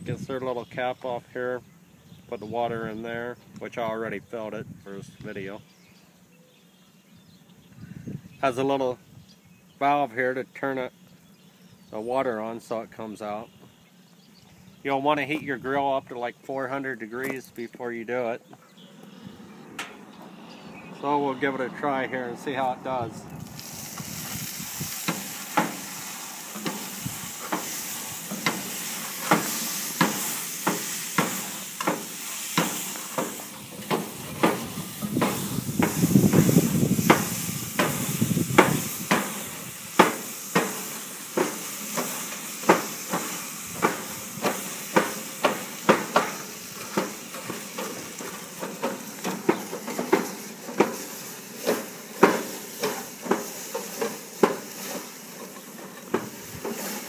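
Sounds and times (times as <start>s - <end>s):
steam hissing: 18.8s - 57.0s
wire bristles scraping grill: 23.4s - 57.0s.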